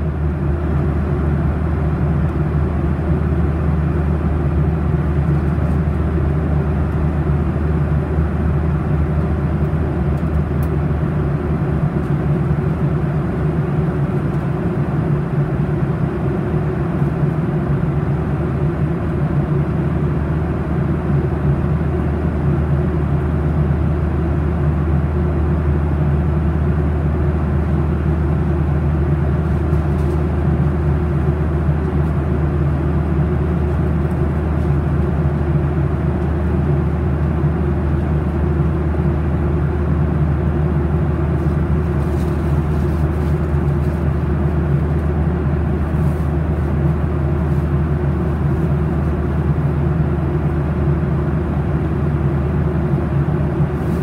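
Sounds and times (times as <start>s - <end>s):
jet engine drone in cabin: 0.0s - 54.0s.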